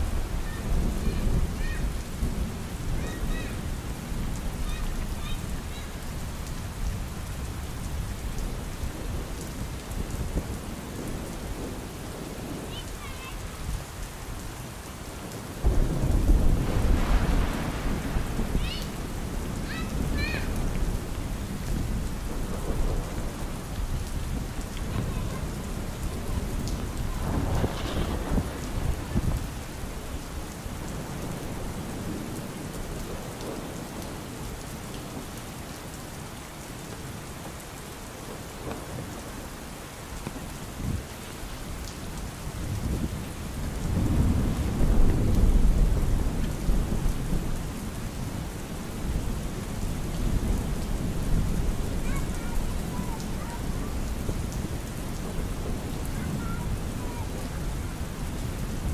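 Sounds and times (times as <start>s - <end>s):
rolling thunder: 0.0s - 6.2s, 15.6s - 34.2s, 42.5s - 58.9s
rain on an umbrella: 0.0s - 58.9s.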